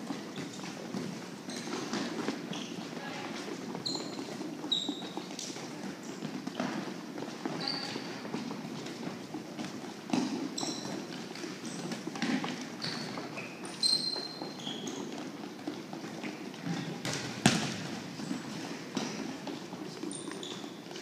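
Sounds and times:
sneakers squeaking on gym floor: 0.0 - 21.0
volleyball thumps: 16.6 - 19.6.

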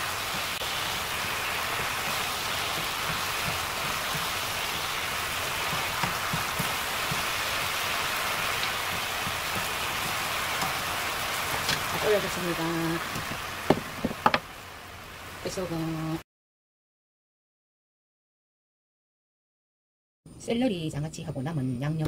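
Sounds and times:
sauce bubbling and sizzling in pan: 0.0 - 15.5.

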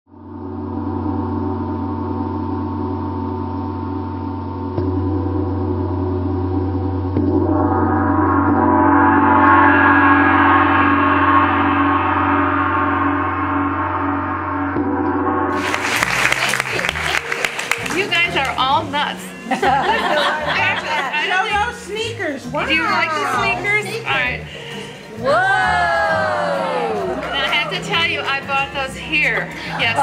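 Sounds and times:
drone of ringing tones: 0.2 - 15.6.

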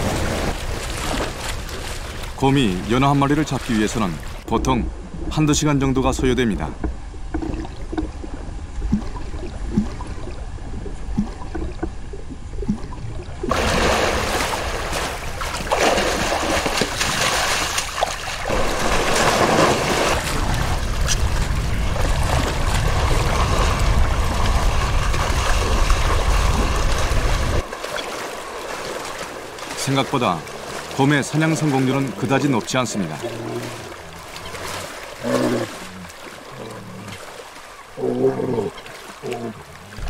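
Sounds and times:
bear splashing through water: 0.0 - 2.4, 13.5 - 40.0.

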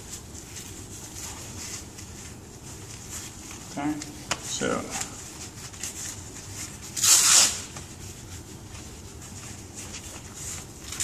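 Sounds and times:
harness straps rustling: 0.0 - 11.0
velcro strap ripping: 6.9 - 7.8.

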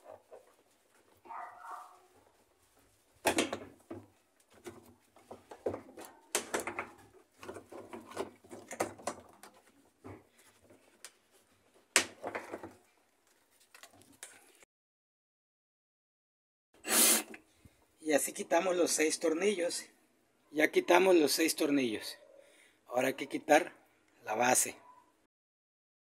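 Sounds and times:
plastic parts clattering: 3.2 - 11.0, 11.9 - 12.9.

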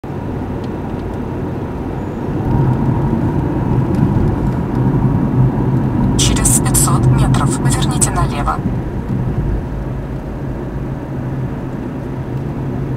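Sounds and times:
car engine and tyre rumble: 0.0 - 6.2, 8.8 - 12.9.

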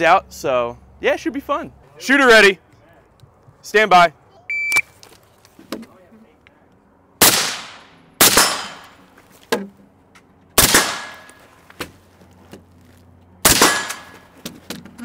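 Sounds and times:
rifle shots with echo: 7.2 - 9.0, 10.6 - 11.3, 13.4 - 14.1.

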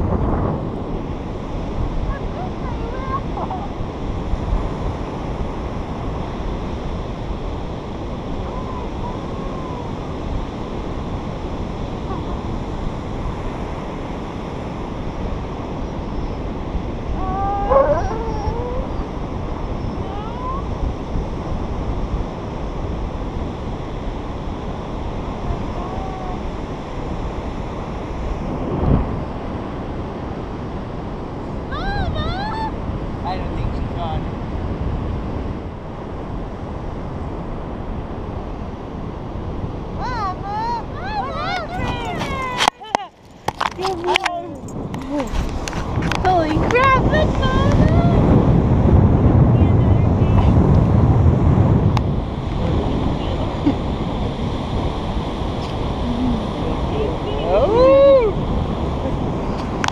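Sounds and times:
wind on microphone: 0.0 - 59.9
dog whining: 17.1 - 19.1.

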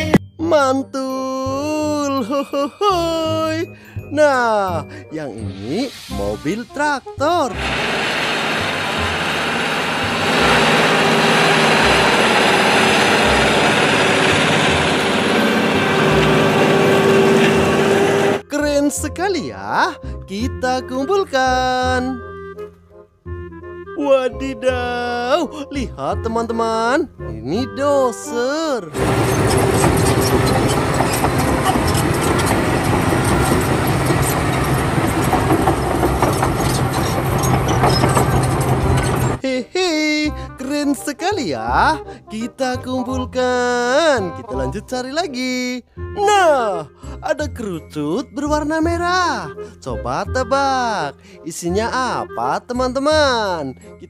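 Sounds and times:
tractor diesel engine under load: 7.5 - 18.4, 28.9 - 39.4.

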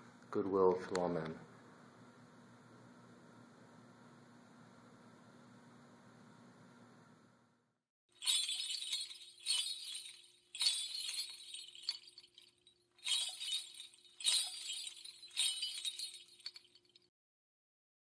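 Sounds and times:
high-pitched chimes ringing: 8.2 - 17.0.

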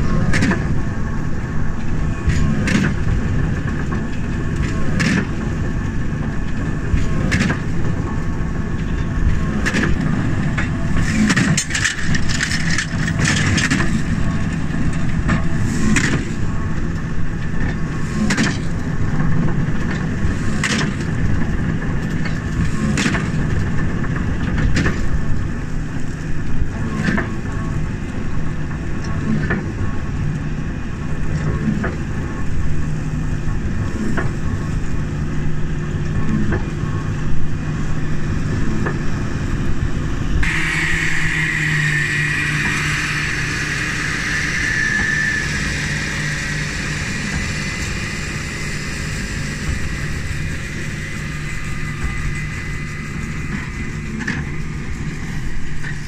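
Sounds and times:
baler mechanical drone: 0.0 - 56.0
hissing machine noise: 37.7 - 56.0.

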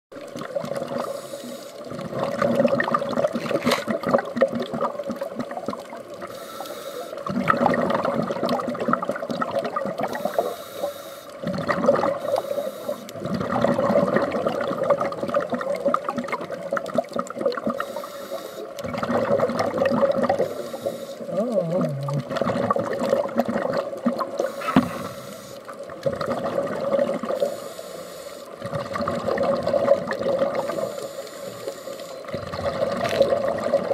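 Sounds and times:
exhaled bubbles underwater: 0.2 - 33.9
diver inhaling through regulator: 1.0 - 1.8, 6.3 - 7.2, 10.0 - 11.4, 12.2 - 13.1, 17.8 - 18.8, 20.4 - 22.2, 24.4 - 25.6, 27.4 - 28.5, 30.6 - 32.3.

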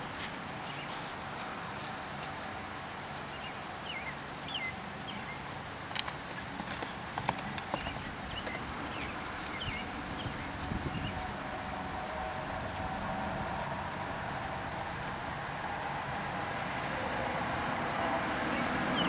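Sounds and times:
horse hoofbeats on dirt: 0.0 - 19.0
steady outdoor hiss: 0.0 - 19.0.

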